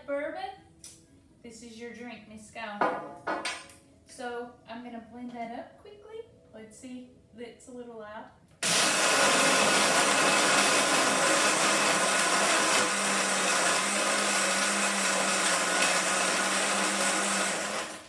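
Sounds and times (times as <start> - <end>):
electric blender running: 8.6 - 18.0.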